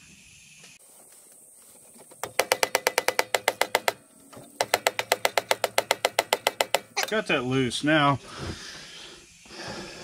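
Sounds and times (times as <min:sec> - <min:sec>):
mallet tapping on metal: 0:02.4 - 0:04.0, 0:04.6 - 0:07.0.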